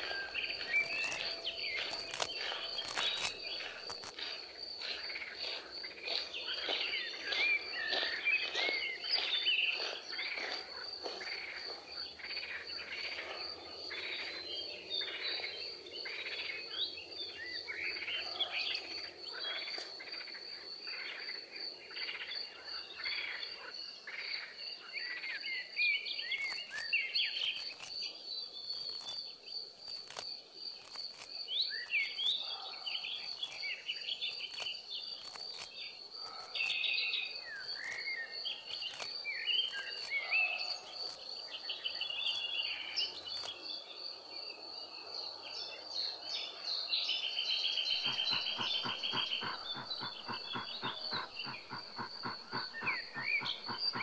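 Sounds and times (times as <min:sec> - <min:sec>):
high-pitched insect trill: 0:00.0 - 0:07.9, 0:26.1 - 0:32.5, 0:48.0 - 0:54.0
birds chirping: 0:00.0 - 0:44.1, 0:45.3 - 0:54.0
fast rattling call: 0:48.0 - 0:54.0.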